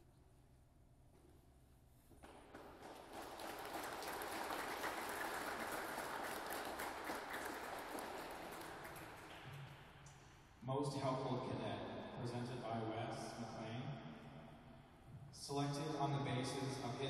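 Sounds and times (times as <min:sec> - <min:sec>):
audience applauding: 0:02.5 - 0:09.9.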